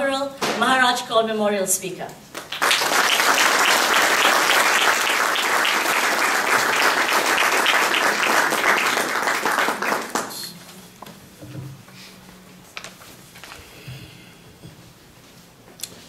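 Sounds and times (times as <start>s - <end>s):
audience applauding: 2.4s - 10.6s.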